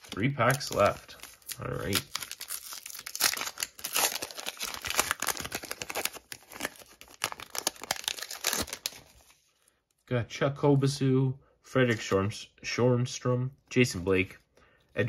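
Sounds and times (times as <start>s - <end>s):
wrapper crinkling and tearing: 0.0s - 9.4s.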